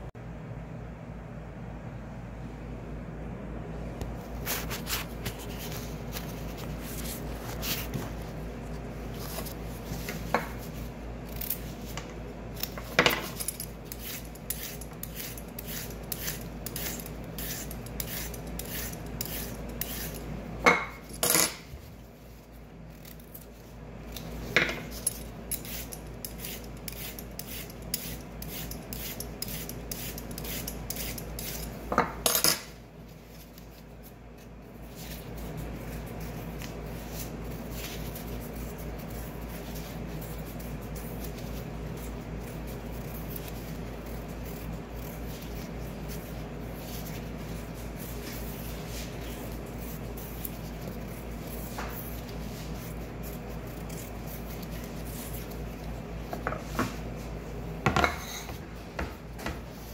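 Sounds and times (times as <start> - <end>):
steady low hum: 0.0 - 59.9
vegetable peeler scraping carrots: 10.1 - 20.4, 22.9 - 31.9, 34.8 - 55.9.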